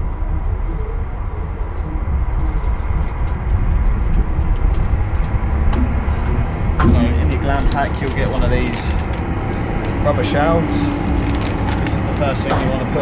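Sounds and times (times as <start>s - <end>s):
steady low rumble: 0.0s - 13.0s
faint footsteps: 1.6s - 10.1s.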